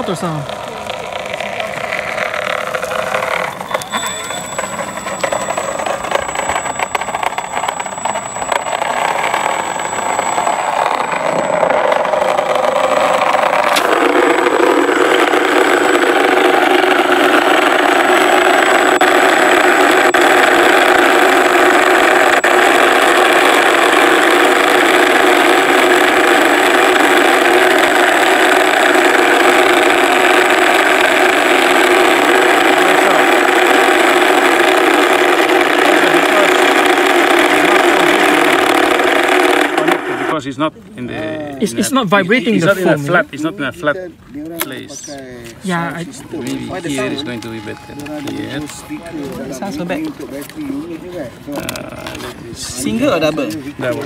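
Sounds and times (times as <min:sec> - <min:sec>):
simulated engine running sound: 0:00.0 - 0:40.5.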